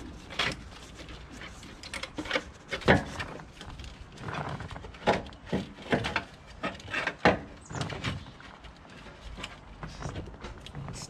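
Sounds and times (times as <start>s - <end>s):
metal clunks and knocks: 4.8s - 8.3s.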